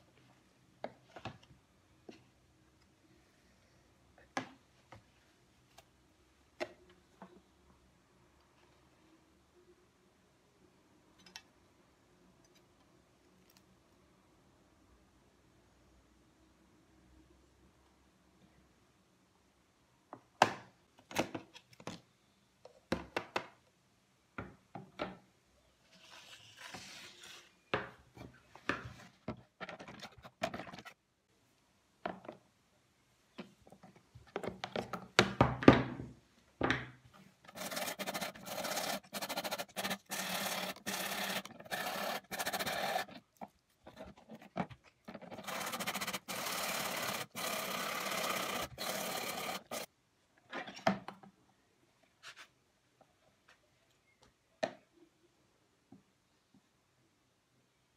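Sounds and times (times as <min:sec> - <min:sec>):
wire brush scrubbing metal: 0:37.5 - 0:43.1, 0:45.4 - 0:49.9.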